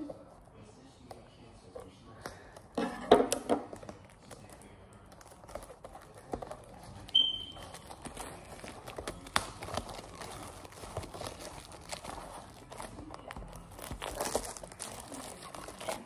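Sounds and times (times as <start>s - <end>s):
crinkling wrapper rustle: 3.7s - 16.0s
brief squeak: 7.1s - 7.6s.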